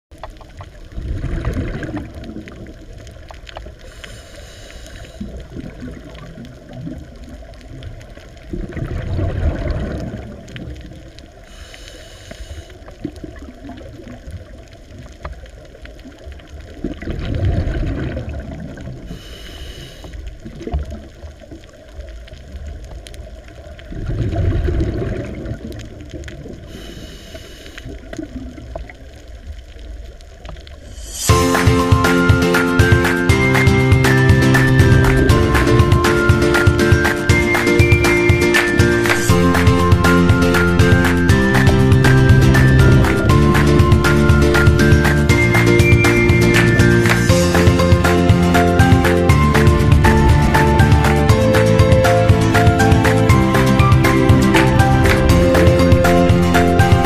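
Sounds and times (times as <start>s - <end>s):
exhaled bubbles underwater: 0.1s - 4.1s, 5.1s - 11.5s, 12.8s - 19.2s, 20.2s - 27.0s, 27.8s - 33.0s
low water rumble: 0.1s - 57.0s
faint inhalation hiss: 3.6s - 5.6s, 11.4s - 13.1s, 19.0s - 20.5s, 26.6s - 28.2s, 30.7s - 31.3s.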